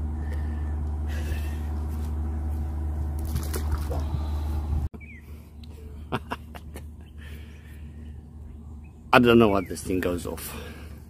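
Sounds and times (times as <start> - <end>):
loud low hum: 0.0 - 11.0
water splashing: 3.2 - 4.5.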